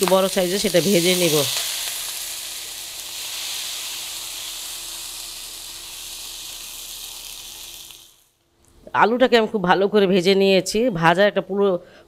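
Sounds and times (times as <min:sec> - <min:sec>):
food sizzling in hot oil: 0:00.0 - 0:08.4.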